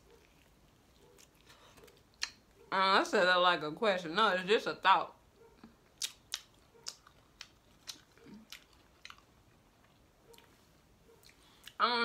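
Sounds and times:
close-up chewing: 0.0s - 2.6s, 5.4s - 11.8s
wet mouth clicks and lip smacks: 5.9s - 9.2s.

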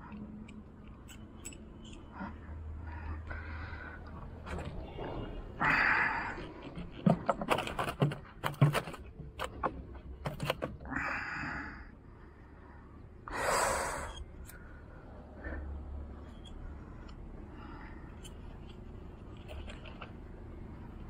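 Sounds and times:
clicks and knocks on wood: 6.3s - 10.9s
breathy hissing bursts: 13.3s - 14.2s.

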